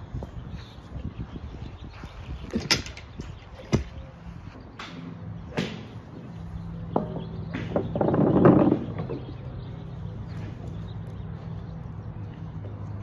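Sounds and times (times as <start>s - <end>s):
golf clubs striking balls: 2.5s - 4.0s, 4.6s - 9.4s.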